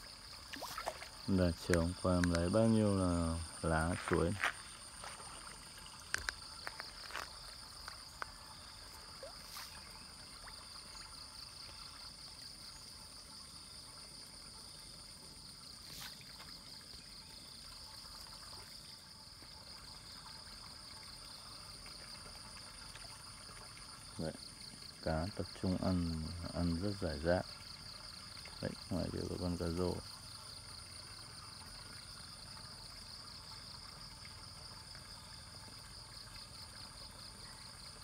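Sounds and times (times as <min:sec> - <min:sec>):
insects chirring: 0:00.0 - 0:38.0
water trickling: 0:00.0 - 0:38.0
fish splashing at surface: 0:00.4 - 0:01.7.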